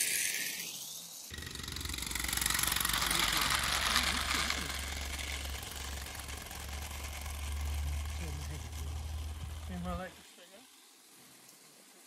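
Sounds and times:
model train wheels rumbling: 1.3 - 10.4
steady low hum: 1.3 - 11.4.

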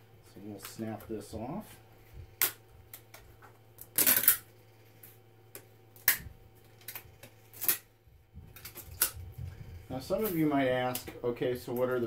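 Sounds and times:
plastic snapping and cracking: 3.8 - 4.5, 5.5 - 7.9, 8.5 - 9.2.

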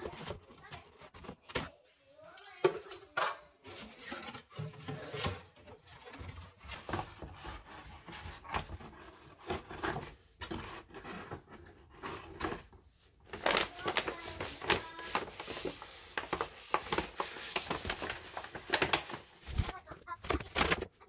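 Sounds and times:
paper bag rustling: 5.1 - 21.0.

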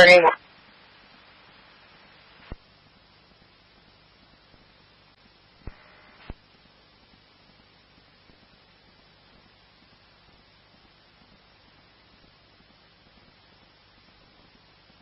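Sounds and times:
radio scanner static hiss: 0.0 - 15.0
radio squelch clicks: 5.6 - 6.4.

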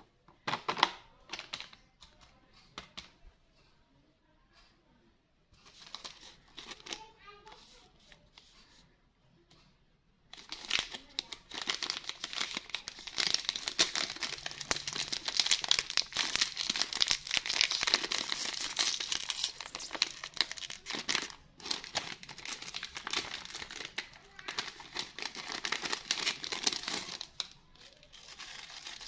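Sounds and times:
snack packet crinkling and tearing: 10.4 - 29.0.

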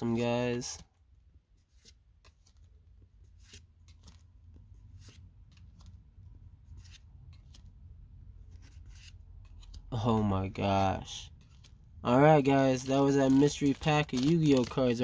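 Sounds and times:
cards flicking and sliding: 3.3 - 4.2, 4.8 - 6.0, 6.7 - 7.7, 8.4 - 9.9.

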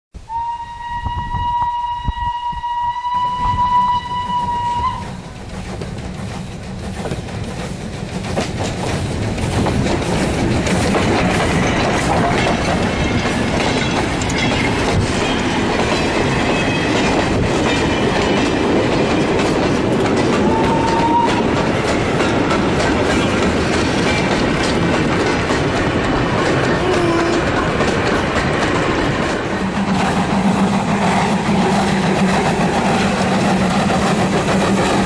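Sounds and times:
steam train whistle blast: 0.2 - 5.3, 20.4 - 21.4
steam train passing: 0.2 - 35.0
wheels clicking over rail joints: 5.0 - 35.0.

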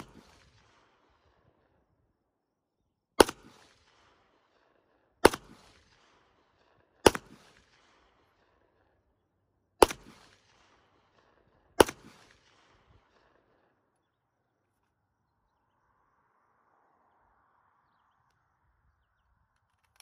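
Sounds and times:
pistol shots with echo: 3.2 - 8.7, 9.8 - 13.7.

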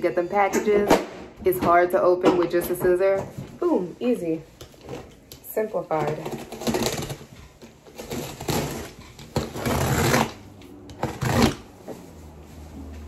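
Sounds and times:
box cutter slicing cardboard: 5.9 - 11.6
cardboard ripping open: 6.0 - 7.3, 7.9 - 10.4, 11.0 - 11.7.

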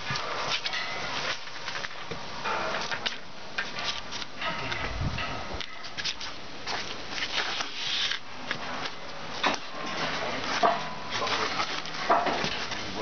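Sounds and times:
rope rubbing and scraping: 5.0 - 9.0.

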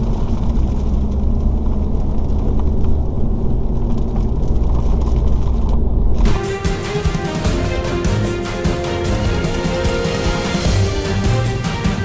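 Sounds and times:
rain pattering on car: 0.0 - 6.3
tyres rumbling on wet road: 0.0 - 12.0
music: 6.2 - 12.0.

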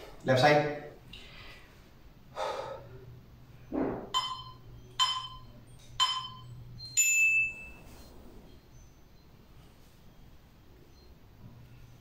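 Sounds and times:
short ringing chime pings: 4.2 - 7.9.

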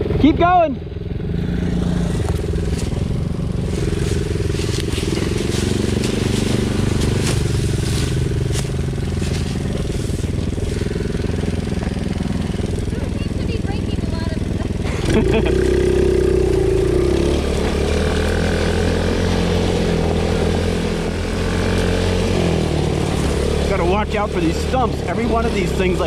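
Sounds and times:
small atv engine running: 0.0 - 26.0.

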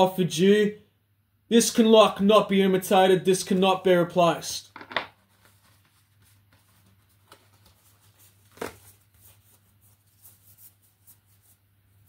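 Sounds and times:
cards being shuffled: 4.8 - 11.6.

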